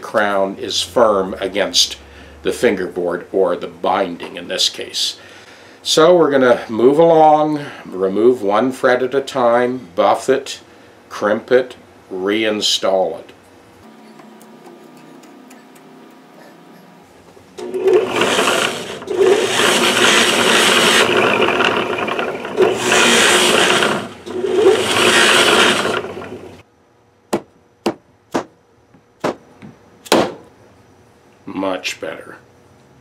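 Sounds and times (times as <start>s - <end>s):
buffing wheel grinding metal: 17.6s - 26.6s.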